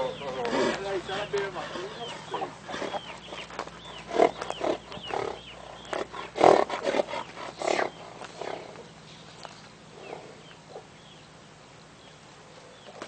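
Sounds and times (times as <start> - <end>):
horse calling in rough bursts: 6.0 - 8.7.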